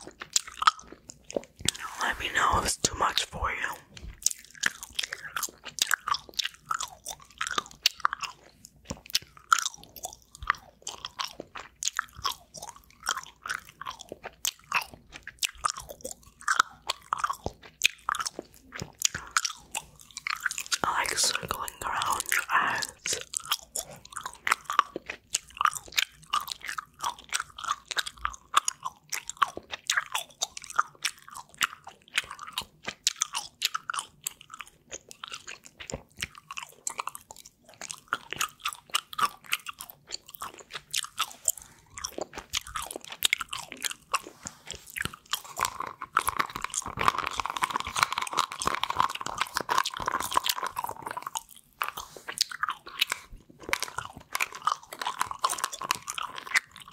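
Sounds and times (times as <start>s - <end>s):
gum chewing: 0.0s - 56.9s.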